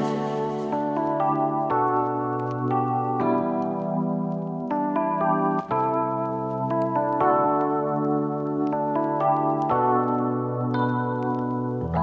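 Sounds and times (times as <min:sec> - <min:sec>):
background music held chords: 0:00.0 - 0:12.0.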